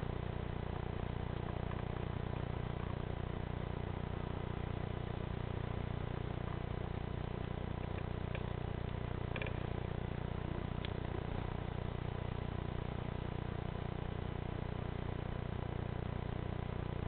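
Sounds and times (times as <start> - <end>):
low mechanical hum: 0.0 - 17.0
faint ticks: 1.3 - 3.0, 7.7 - 11.6.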